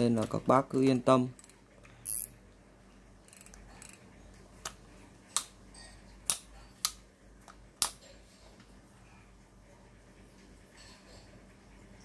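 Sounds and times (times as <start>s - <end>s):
fishing reel clicks: 0.9s - 2.4s, 3.3s - 4.0s.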